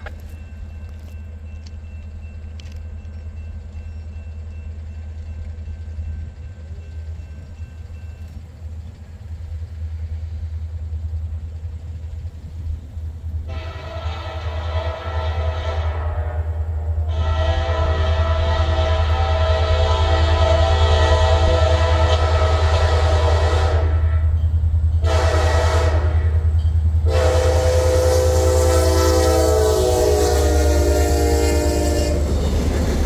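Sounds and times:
diesel train rumble: 0.0 - 33.0
train air horn blast: 13.5 - 24.2, 25.0 - 26.4, 27.0 - 32.4.

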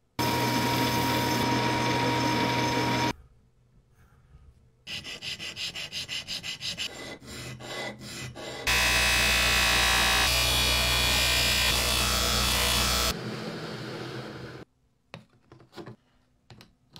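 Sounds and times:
bench grinder wheel whirring: 0.2 - 3.1.

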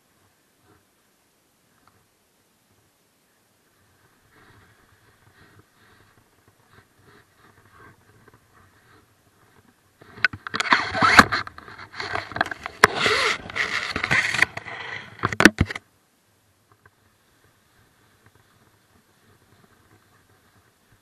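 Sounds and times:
rustling and scraping against camera: 3.6 - 15.9, 16.6 - 21.0.

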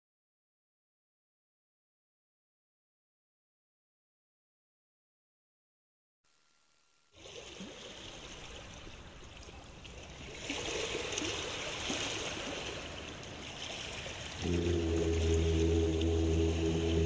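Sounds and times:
water lapping and splashing: 7.2 - 17.0.

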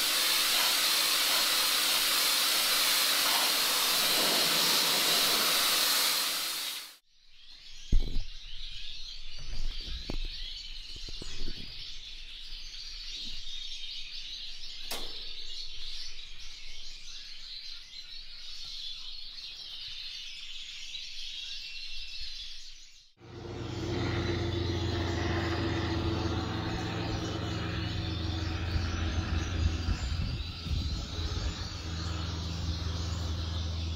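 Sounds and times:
caged birds chirping: 7.5 - 33.9
sharp click: 14.9 - 15.3.

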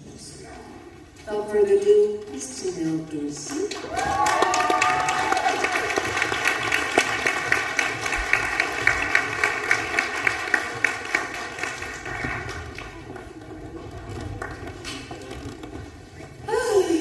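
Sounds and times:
audience applauding: 3.5 - 15.2.

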